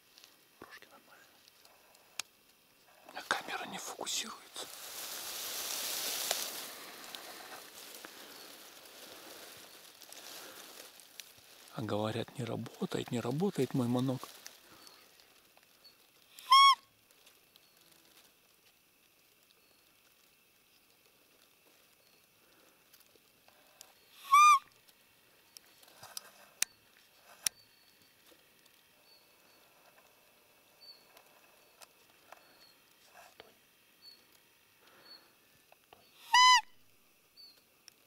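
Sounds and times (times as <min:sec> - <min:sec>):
deer call high peeps: 0:16.3 - 0:17.0, 0:24.1 - 0:24.7, 0:36.0 - 0:36.7.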